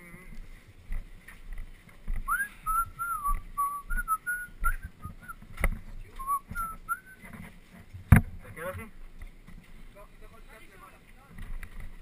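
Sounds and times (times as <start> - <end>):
person whistling a tune: 2.3 - 5.4, 6.2 - 7.2.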